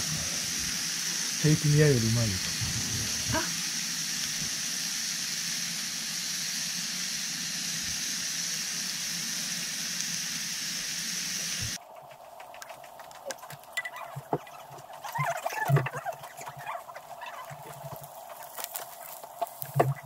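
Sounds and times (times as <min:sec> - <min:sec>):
steak sizzling in frying pan: 0:00.0 - 0:11.8, 0:16.2 - 0:20.0.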